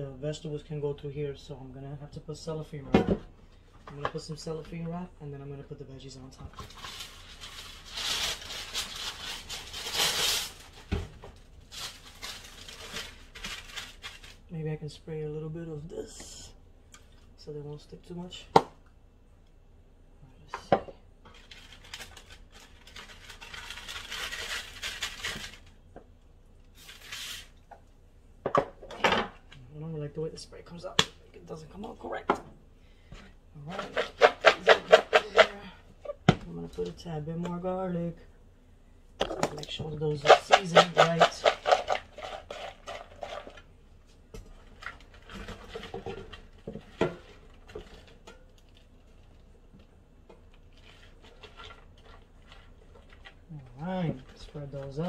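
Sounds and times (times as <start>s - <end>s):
plastic wrap crinkling: 6.6s - 10.9s, 11.6s - 14.5s, 21.3s - 25.8s
vegetables tossed in plastic container: 33.7s - 35.5s, 39.2s - 43.7s.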